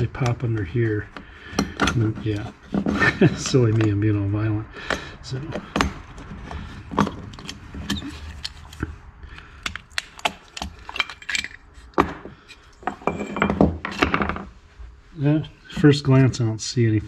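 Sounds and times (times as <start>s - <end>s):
clicks and snaps of tabs: 8.4s - 10.8s
parts knocking on wooden workbench: 12.0s - 14.5s.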